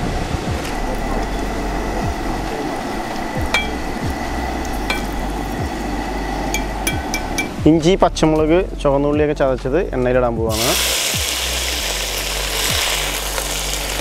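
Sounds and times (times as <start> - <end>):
nuts sizzling in hot oil: 0.0 - 7.4, 10.5 - 14.0.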